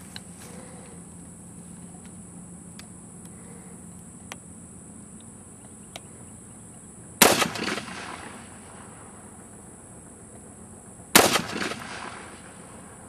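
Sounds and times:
rifle shot: 7.2 - 8.9, 11.1 - 12.7.

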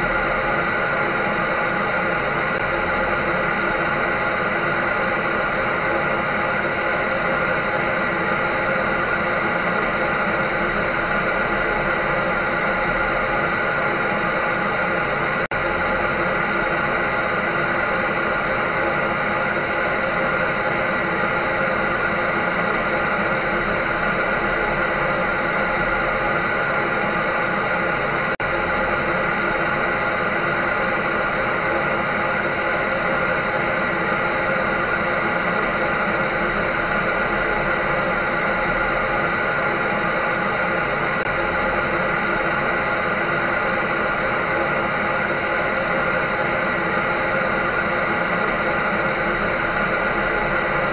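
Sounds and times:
clothes dryer whirring: 0.0 - 50.9.

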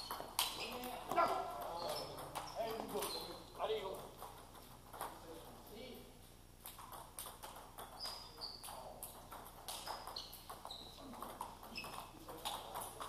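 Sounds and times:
table tennis ball ticking: 6.6 - 13.0.

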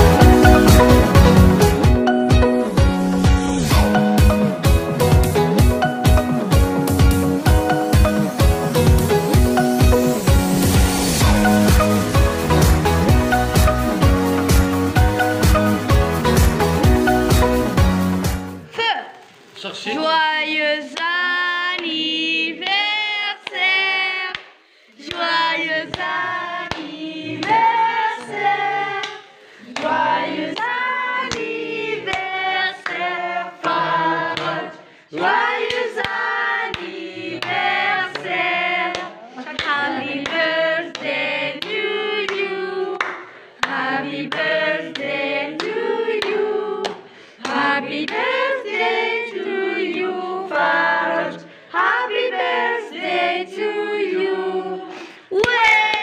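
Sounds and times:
group singing: 0.0 - 5.8, 7.4 - 17.8, 20.7 - 55.5
hand-clapping: 24.3 - 34.6, 35.2 - 48.4, 55.4 - 56.0.

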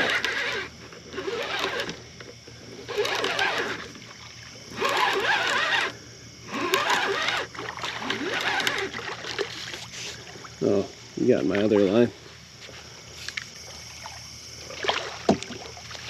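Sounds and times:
fish splashing in water: 8.7 - 10.6, 13.8 - 16.0.

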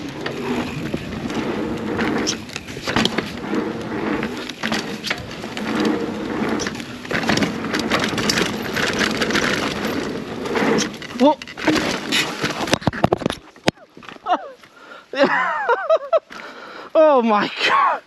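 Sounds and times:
bike tyres on dirt: 0.0 - 15.1
bike clicking and rattling: 0.0 - 16.7.

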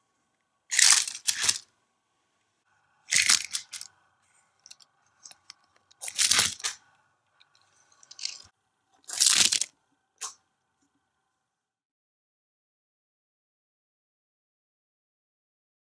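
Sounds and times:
plastic toy parts clattering: 0.7 - 1.7, 3.1 - 3.9, 4.6 - 6.8, 7.9 - 9.7.

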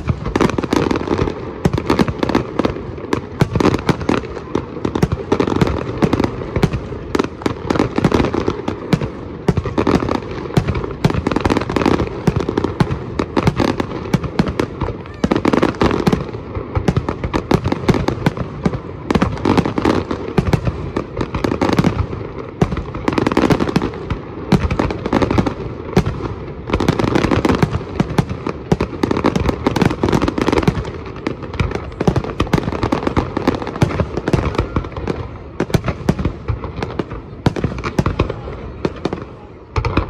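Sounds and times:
fireworks bursting and crackling: 0.0 - 40.0.

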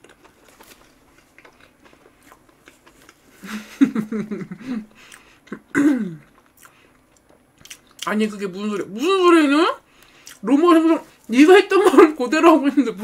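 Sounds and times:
person chewing cake: 0.0 - 8.1, 9.9 - 10.5.

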